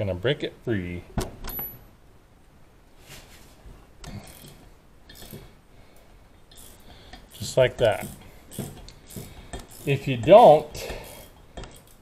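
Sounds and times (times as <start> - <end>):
faint wrench clicks: 4.0 - 5.5, 6.5 - 12.0.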